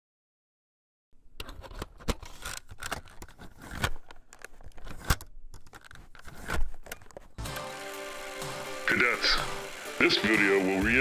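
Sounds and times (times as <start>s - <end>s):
crackling popping static: 5.6s - 11.0s.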